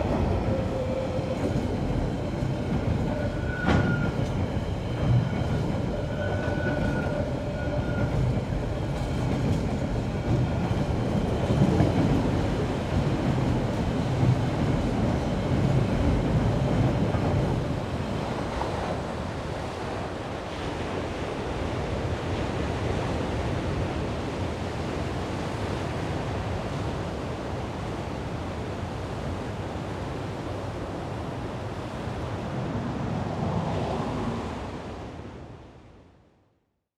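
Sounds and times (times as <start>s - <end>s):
surf on shingle shore: 8.9s - 35.8s.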